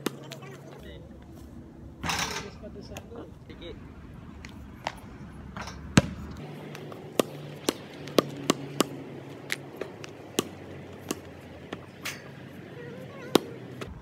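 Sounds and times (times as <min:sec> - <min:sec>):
basketball bouncing on court: 0:04.4 - 0:12.0
basketball knocking against hoop: 0:05.6 - 0:06.4.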